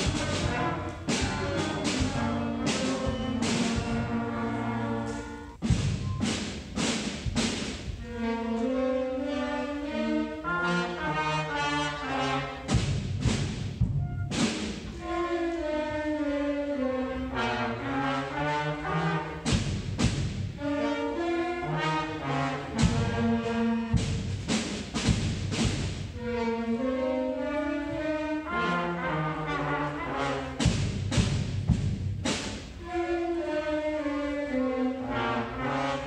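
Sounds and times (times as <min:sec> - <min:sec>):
concert band playing: 0:00.0 - 0:36.0
drum hits: 0:05.0 - 0:08.2, 0:12.7 - 0:15.0, 0:19.4 - 0:20.6, 0:22.7 - 0:26.2, 0:30.6 - 0:32.7.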